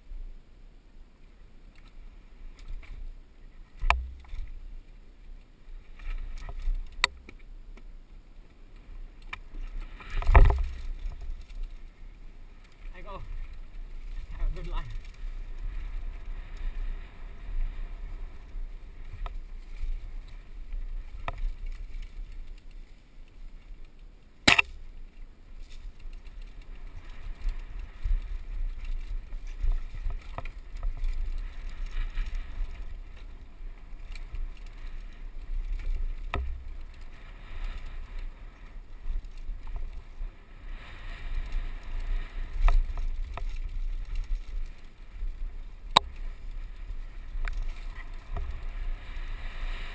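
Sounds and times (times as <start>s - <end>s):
wind rumble on microphone: 0.0s - 49.9s
bike rattles and knocks: 9.2s - 11.7s, 24.4s - 33.4s, 42.5s - 45.0s
sharp loud click: 24.5s - 24.8s.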